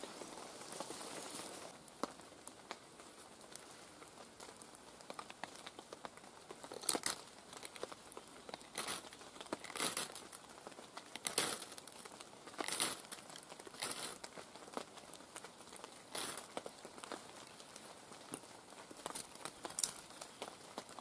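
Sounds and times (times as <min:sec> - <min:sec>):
wood shavings crinkling: 0:00.0 - 0:21.0.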